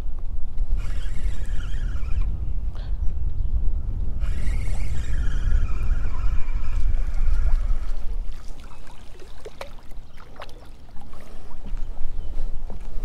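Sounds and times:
wind rumbling on microphone: 0.0s - 13.0s
high whine sliding down: 3.9s - 8.0s
water lapping against boat hull: 4.2s - 13.0s.

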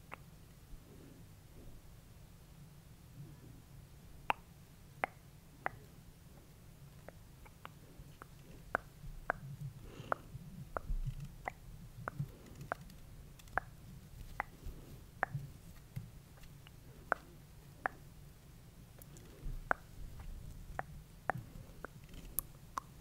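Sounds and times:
sharp little clicks: 10.8s - 14.6s.

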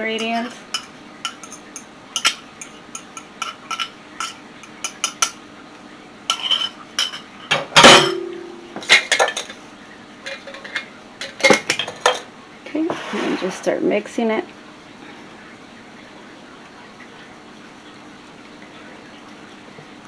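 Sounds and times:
utensils clicking and clinking: 0.0s - 5.4s, 6.3s - 8.2s, 8.8s - 9.6s, 10.2s - 12.3s.

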